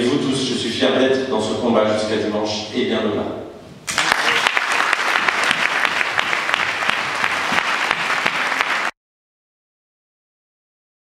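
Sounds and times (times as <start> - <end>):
audience applauding: 3.9 - 9.0.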